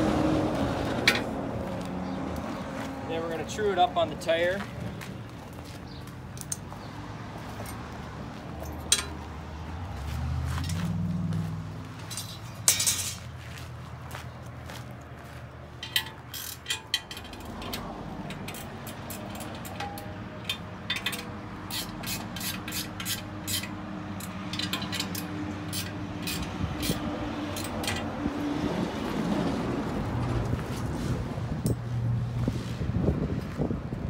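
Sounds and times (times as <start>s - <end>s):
ratchet wrench clicking: 15.8s - 28.0s.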